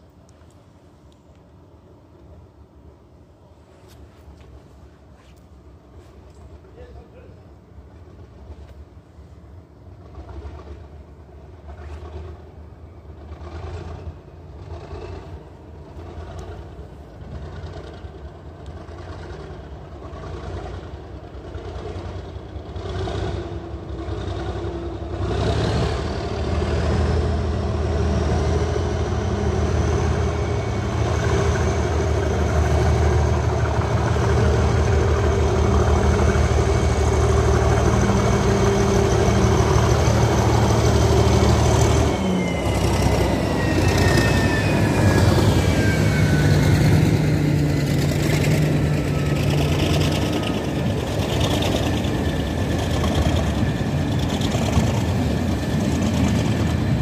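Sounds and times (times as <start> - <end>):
diesel locomotive engine running: 0.0 - 57.0
wagons rolling past: 9.8 - 57.0
high train whistle: 41.2 - 47.4.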